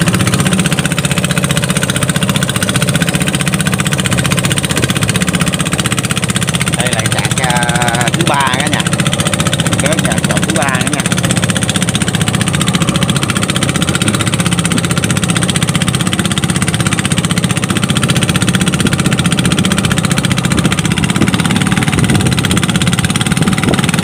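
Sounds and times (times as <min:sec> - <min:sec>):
boat engine running: 0:00.0 - 0:24.0.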